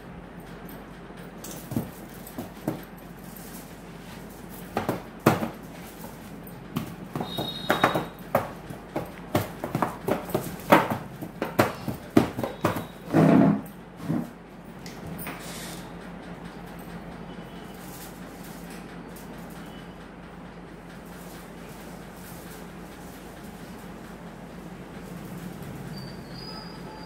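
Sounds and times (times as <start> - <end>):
dough kneaded by hand: 1.6 - 15.1.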